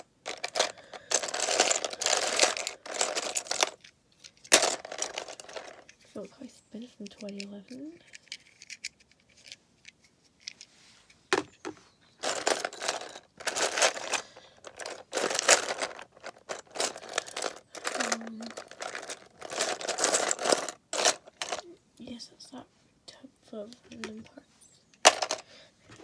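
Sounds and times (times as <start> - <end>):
plastic toy bricks clattering: 0.0 - 6.0, 7.0 - 10.6, 12.2 - 21.6, 25.0 - 25.5.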